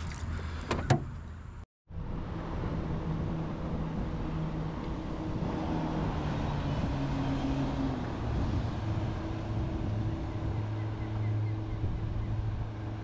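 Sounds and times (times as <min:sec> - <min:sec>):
rush of water: 0:00.0 - 0:00.7
boat motor humming: 0:02.4 - 0:13.0.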